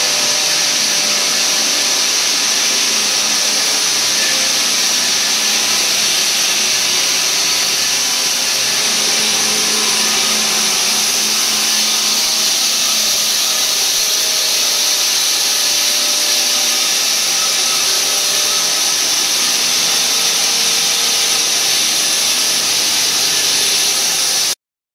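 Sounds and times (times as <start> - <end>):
saw cutting metal: 0.0 - 24.6.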